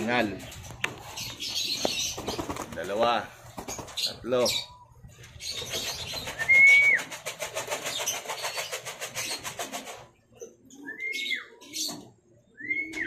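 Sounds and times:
pigeon wings fluttering: 1.9 - 4.1, 5.6 - 10.2
high whistled bird call: 6.2 - 7.1.

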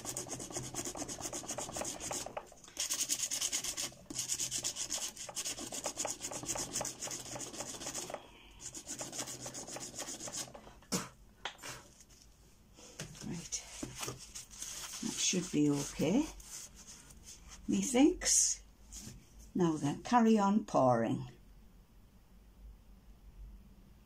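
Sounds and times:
sandpaper scraping strokes: 0.0 - 10.5, 14.0 - 17.6.

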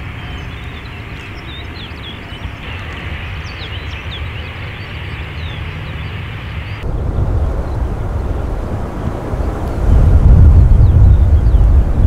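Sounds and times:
small birds chirping: 0.0 - 6.9, 10.6 - 11.8
jet engines rumbling: 0.0 - 12.0.

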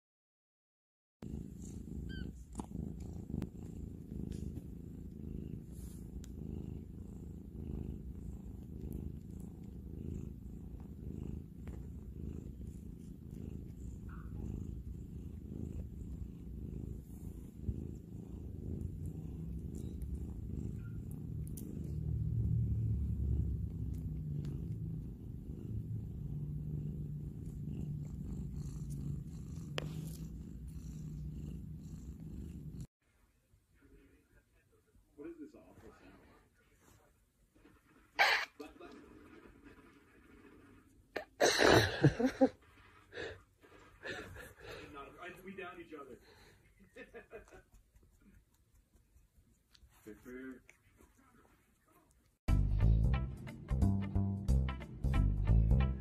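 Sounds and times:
cat purring: 1.2 - 32.9, 33.8 - 54.2.

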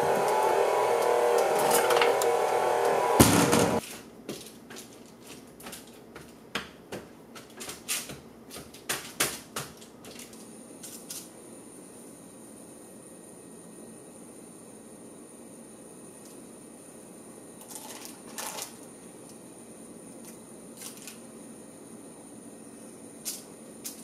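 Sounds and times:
stand mixer beating dough: 0.0 - 3.8.

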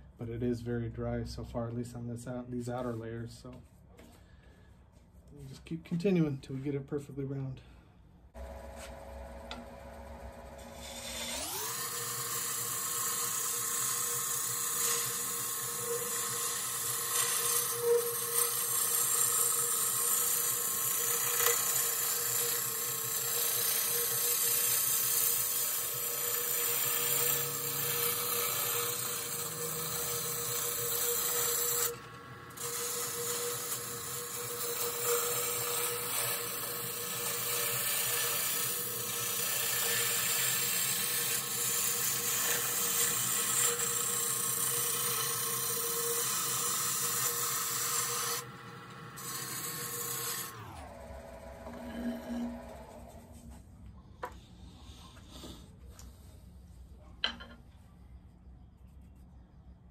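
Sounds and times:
wood lathe whining: 8.4 - 53.6.

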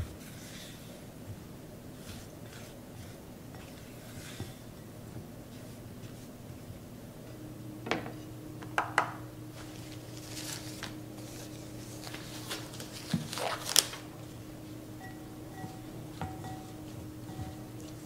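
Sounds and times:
low steady hum: 0.0 - 18.0
disposable glove rustling and snapping: 9.6 - 14.1.

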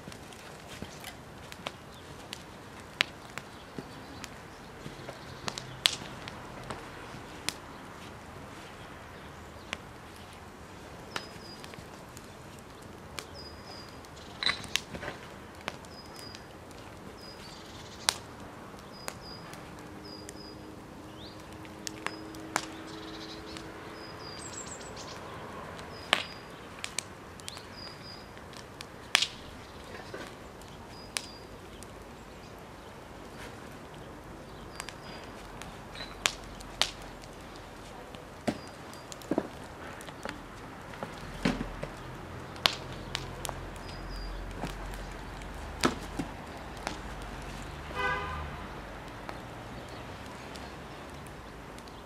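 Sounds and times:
wood fire crackling: 0.0 - 52.0
bird chirping: 3.2 - 5.8, 11.1 - 11.8, 12.7 - 14.8, 17.1 - 18.2, 18.8 - 26.8, 27.4 - 28.4, 42.0 - 45.2.

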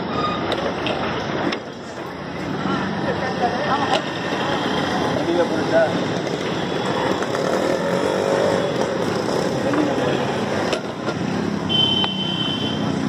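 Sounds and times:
dense traffic hum: 0.0 - 13.0
motorcycles passing close by: 3.6 - 13.0.

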